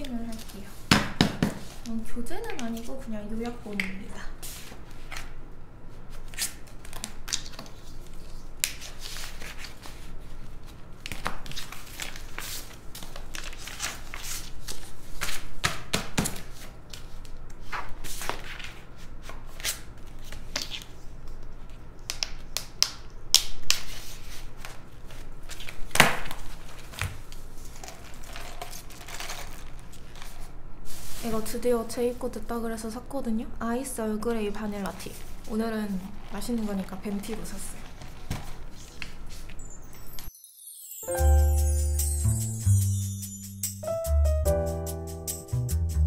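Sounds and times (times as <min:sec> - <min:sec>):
paper rustling and flapping: 0:06.1 - 0:21.8, 0:23.7 - 0:31.3, 0:35.0 - 0:39.6.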